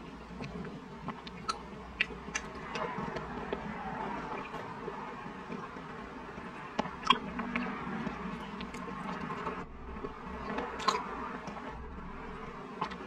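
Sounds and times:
steady buzzing hum: 0.0s - 13.0s
wet mouth clicks and smacks: 0.4s - 4.6s, 6.8s - 11.6s.

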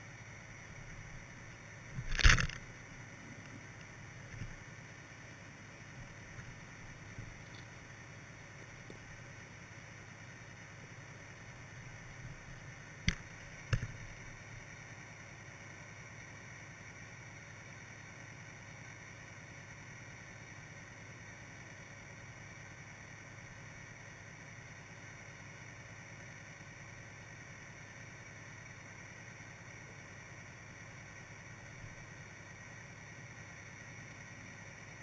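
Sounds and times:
sharp clicks: 2.0s - 2.6s, 13.0s - 14.0s.

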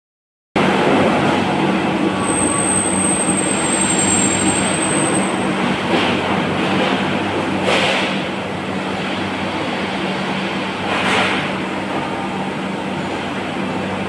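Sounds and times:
high whine: 0.6s - 5.8s.

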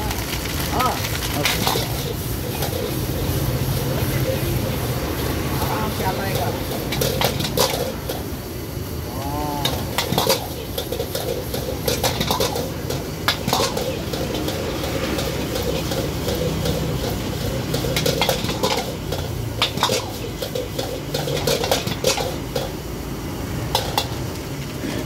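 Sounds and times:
steady background noise: 0.0s - 25.0s
spatula scraping a wok: 1.4s - 8.3s, 9.6s - 22.8s.

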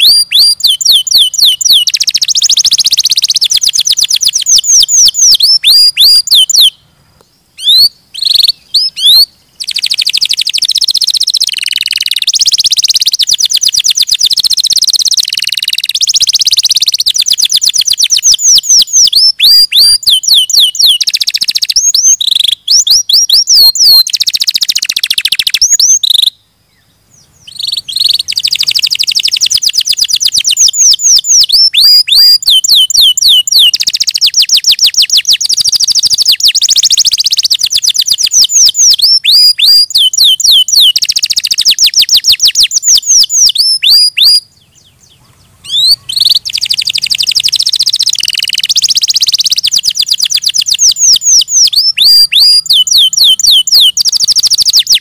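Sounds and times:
canary singing trills: 0.0s - 55.0s.

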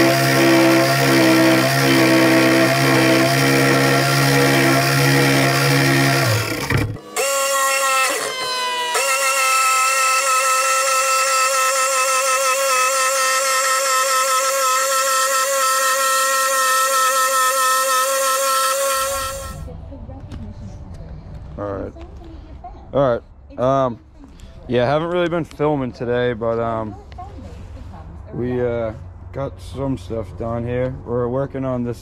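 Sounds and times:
electric jigsaw whining: 0.0s - 19.7s.

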